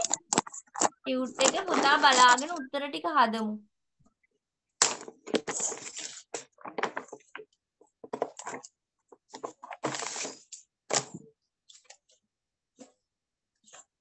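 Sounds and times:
rustling handling noise: 0.0 - 2.6, 4.9 - 12.2.

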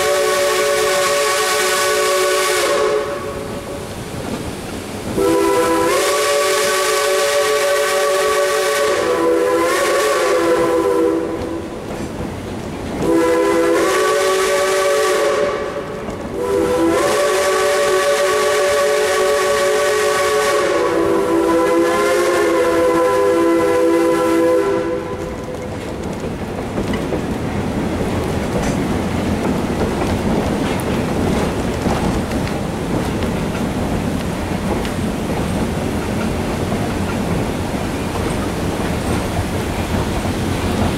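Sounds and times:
steam whistle blasts: 0.0 - 3.8, 5.2 - 11.7, 13.0 - 25.4
moving train running noise: 0.0 - 40.9.

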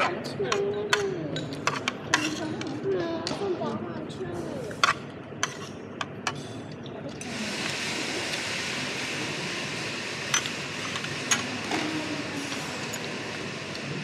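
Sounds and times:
steady rushing hiss: 7.2 - 14.0.

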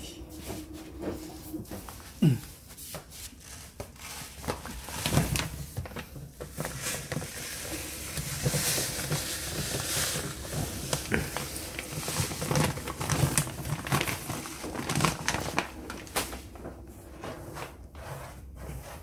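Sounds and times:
plastic bag rustling: 0.0 - 17.9
litter pellets pouring: 6.6 - 15.8.

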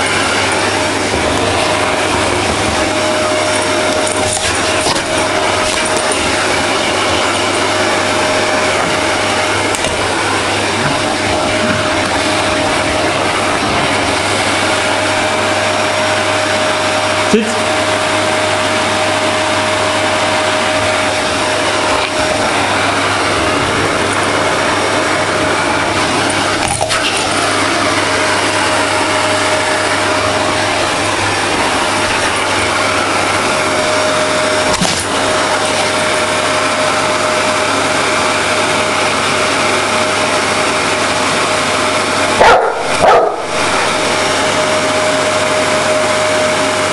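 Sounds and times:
vacuum cleaner running: 0.0 - 46.9
large dog barking: 42.4 - 43.9.

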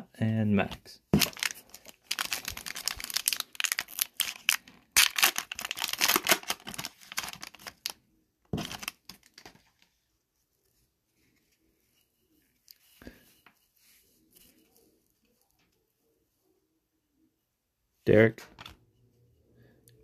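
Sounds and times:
foil wrapper crinkling and tearing: 1.2 - 8.0, 8.6 - 9.5.

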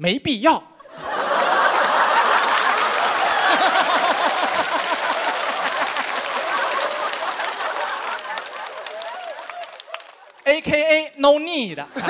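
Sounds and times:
audience laughing loudly: 0.8 - 10.4
scattered clapping: 1.4 - 10.5.

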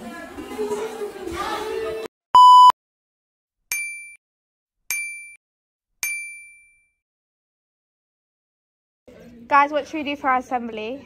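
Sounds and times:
voices and corridor noise: 0.0 - 2.1
loud electronic bleep: 2.4 - 2.7.

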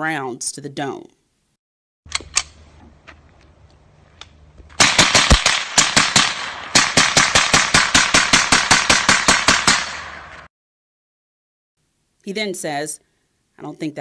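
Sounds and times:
gunshots in rapid succession: 4.8 - 10.5.

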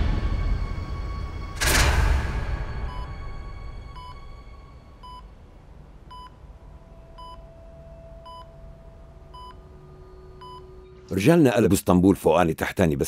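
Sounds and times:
music: 0.0 - 5.3, 6.2 - 11.2
faint low hum: 0.0 - 13.0
short electronic beep: 1.6 - 5.2.

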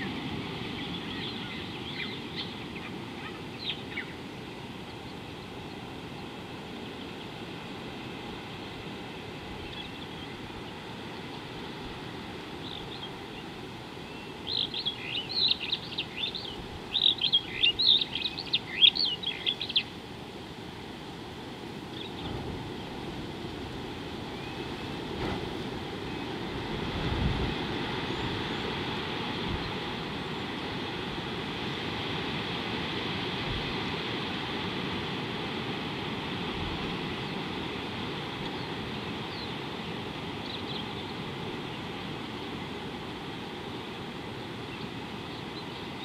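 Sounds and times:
faint bird chirps: 0.0 - 4.2, 12.6 - 20.0.

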